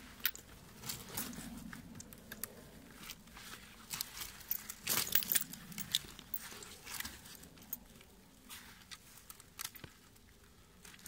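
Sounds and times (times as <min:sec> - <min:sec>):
low rustle of handling: 0:00.0 - 0:11.0
snow chain links clinking: 0:03.9 - 0:07.9.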